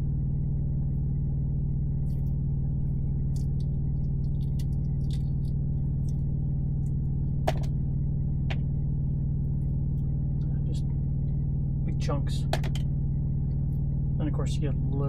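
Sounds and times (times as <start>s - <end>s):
steady low hum: 0.0s - 15.0s
eggshell crackling: 3.2s - 7.7s
eggshell cracking: 3.3s - 6.2s.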